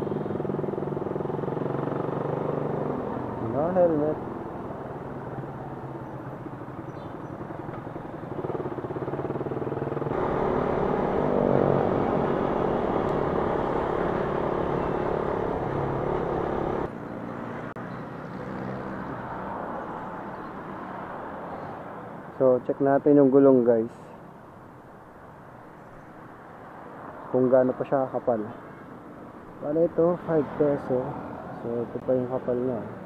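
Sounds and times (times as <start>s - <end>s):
wind and road noise: 0.0s - 33.0s
motorcycle engine running: 6.0s - 16.9s.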